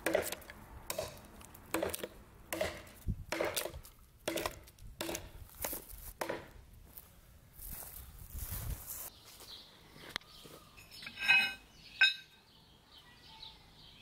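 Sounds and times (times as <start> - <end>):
knife chopping into a log: 0.0 - 6.5.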